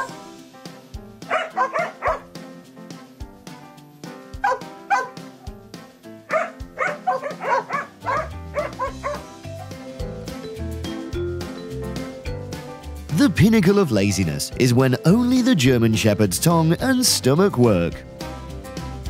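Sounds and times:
dog yipping: 0:00.0 - 0:00.2, 0:01.3 - 0:02.3, 0:04.4 - 0:05.2, 0:06.3 - 0:09.2
background music: 0:00.0 - 0:19.0.

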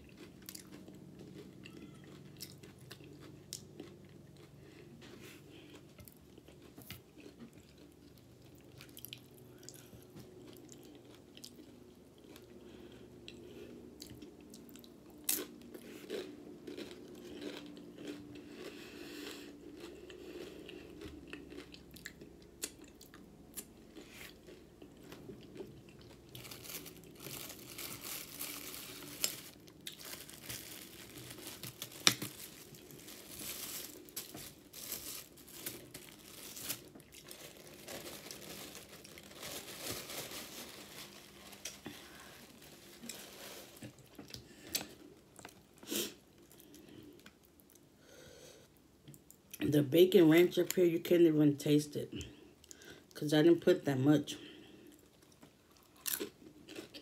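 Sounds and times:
crunching tortilla chips: 0:14.0 - 0:47.8, 0:54.8 - 0:57.0
paper napkin rustling: 0:30.3 - 0:43.9.

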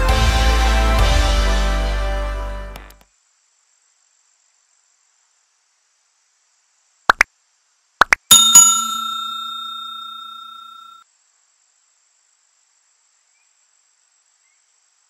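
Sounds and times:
bell-like ding: 0:08.3 - 0:11.0.

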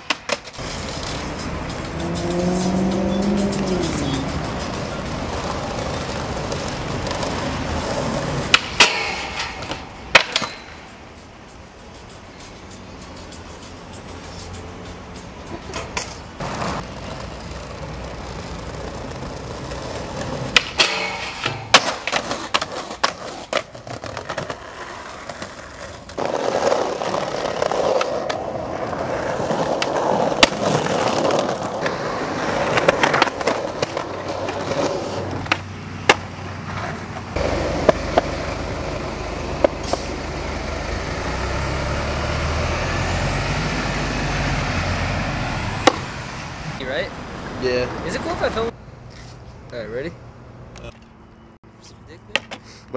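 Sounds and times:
skateboard clacks: 0:00.0 - 0:40.1, 0:45.8 - 0:46.1, 0:52.3 - 0:52.6
skateboard wheels rolling: 0:00.0 - 0:43.8, 0:44.4 - 0:49.6
traffic rumble: 0:00.0 - 0:52.9.

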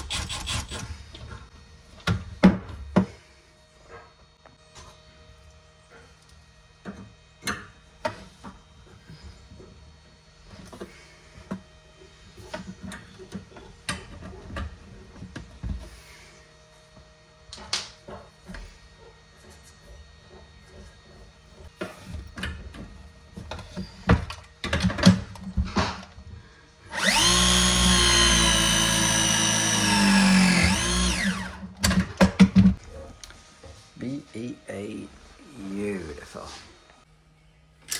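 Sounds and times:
press tool motor whirring: 0:26.9 - 0:31.6.

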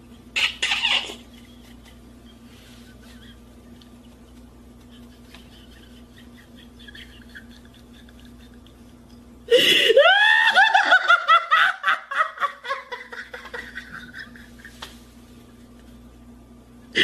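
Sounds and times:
person laughing: 0:00.3 - 0:16.1.

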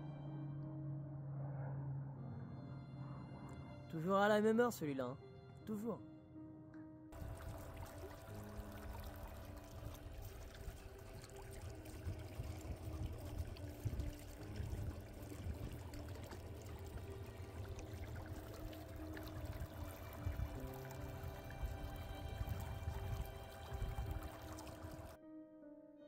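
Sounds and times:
faint background music: 0:00.0 - 0:26.0
water splashing along boat hull: 0:07.2 - 0:25.2.

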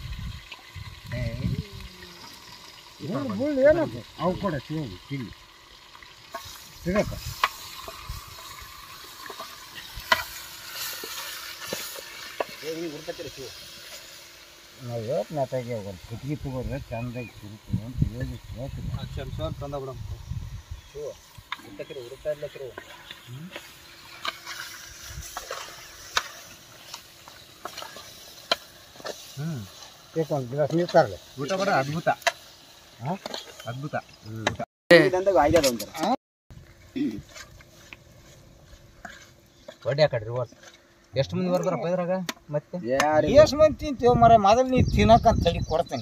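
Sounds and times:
faint hiss: 0:00.0 - 0:36.2
chicken sizzling in a pot: 0:00.0 - 0:46.0.

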